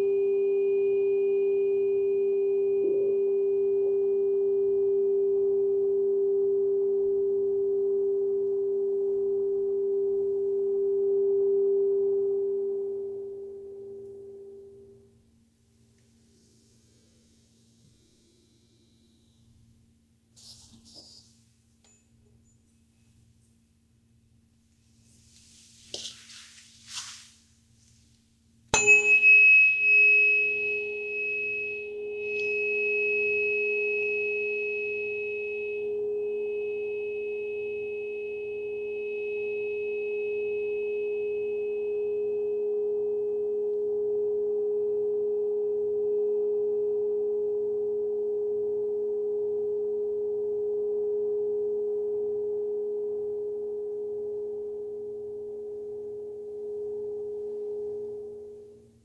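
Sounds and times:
tuning fork clink: 0:00.0 - 0:07.1, 0:21.8 - 0:23.1, 0:28.7 - 0:42.3
tuning fork ringing pure tone: 0:00.0 - 0:15.4, 0:28.7 - 0:59.0.

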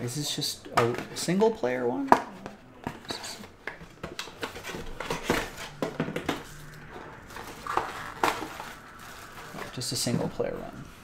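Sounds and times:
cardboard box rustling and scraping: 0:03.8 - 0:09.8.

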